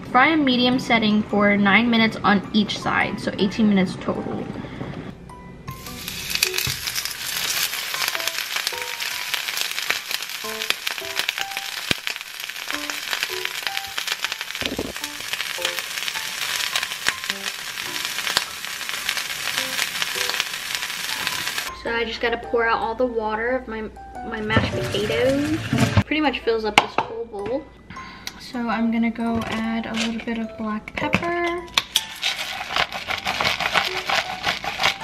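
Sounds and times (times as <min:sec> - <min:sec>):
burger sizzling in oil: 0:05.7 - 0:21.7, 0:32.1 - 0:35.0.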